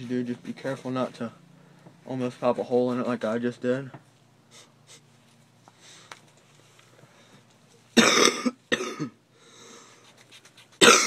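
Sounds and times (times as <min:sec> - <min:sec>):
person coughing: 0:08.0 - 0:09.2, 0:10.8 - 0:11.0.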